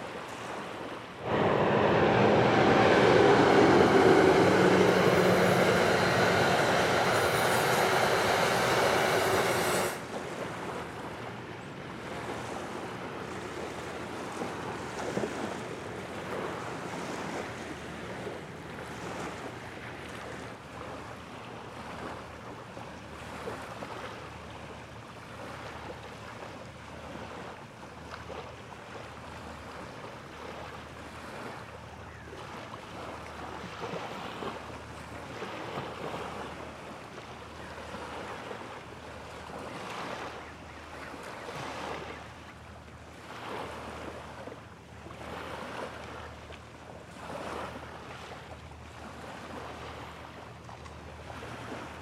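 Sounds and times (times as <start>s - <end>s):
small waves washing against shore: 0.0s - 52.0s
pulsing low hum: 1.2s - 10.0s
wind on microphone: 1.2s - 10.0s.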